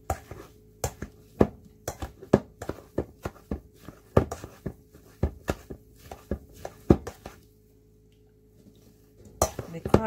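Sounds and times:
potato masher knocking in metal bowl: 9.4 - 10.0.

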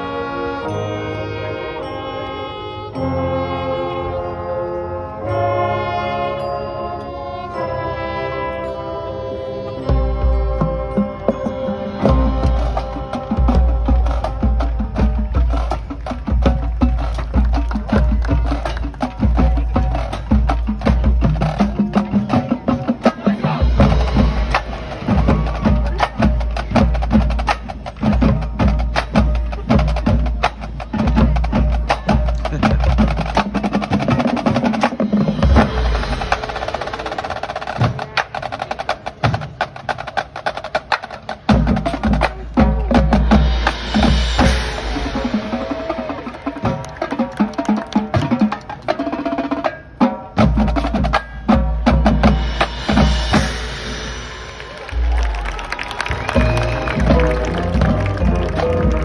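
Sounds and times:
mallet percussion: 0.0 - 39.6, 40.8 - 59.0
marching band playing: 0.0 - 59.0
rapid snare drumming: 50.4 - 59.0.

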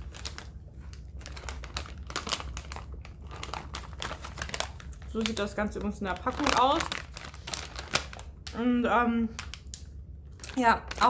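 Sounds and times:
plastic snack bag crinkling: 0.0 - 11.0.

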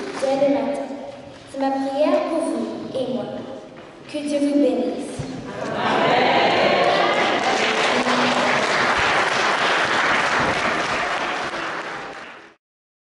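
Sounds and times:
congregation applauding: 6.0 - 12.6.

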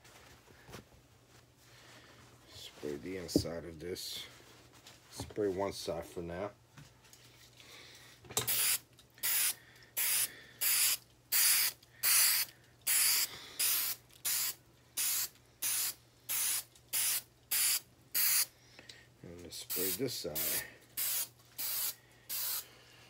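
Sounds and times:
aerosol spray hisses: 19.8 - 22.6.

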